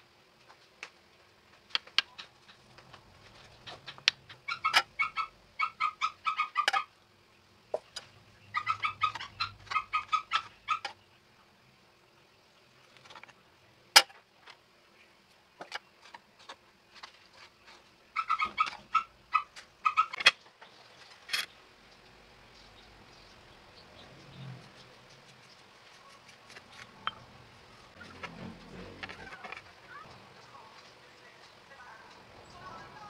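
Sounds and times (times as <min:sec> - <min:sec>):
small animal chirping: 0:03.5 - 0:06.9, 0:08.4 - 0:11.0, 0:18.2 - 0:20.2.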